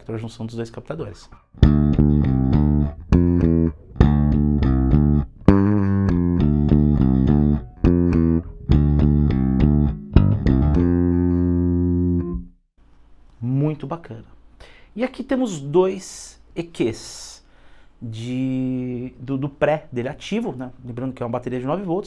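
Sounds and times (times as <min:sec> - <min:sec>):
electric bass plucked notes: 0:01.6 - 0:12.6.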